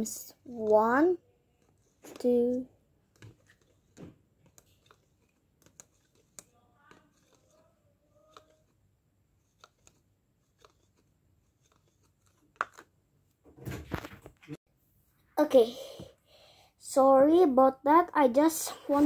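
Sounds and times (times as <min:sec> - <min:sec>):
spoon stirring slime in cup: 0:00.5 - 0:08.8, 0:09.4 - 0:12.9.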